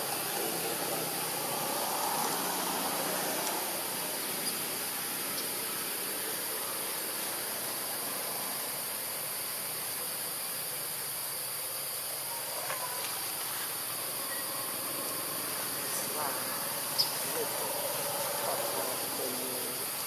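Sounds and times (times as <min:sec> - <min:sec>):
insects buzzing: 0:00.0 - 0:20.0
faint chirp: 0:12.2 - 0:14.8, 0:16.6 - 0:17.6.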